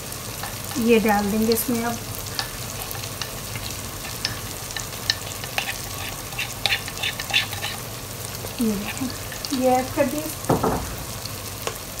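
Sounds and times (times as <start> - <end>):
food sizzling in a pot: 0.0 - 12.0
spatula scraping a container: 4.1 - 7.9.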